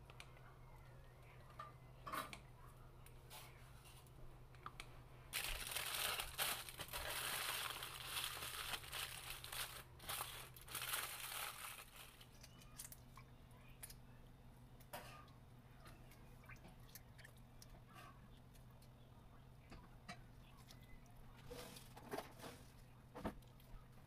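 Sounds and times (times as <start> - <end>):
aluminum foil crinkling: 5.3 - 13.0.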